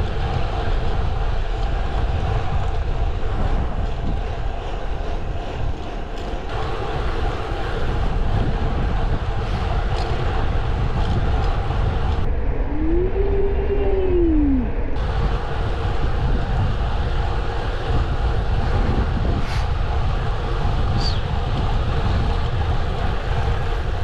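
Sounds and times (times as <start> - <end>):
heavy wind rush: 0.0 - 24.0
gliding tone: 12.3 - 15.0.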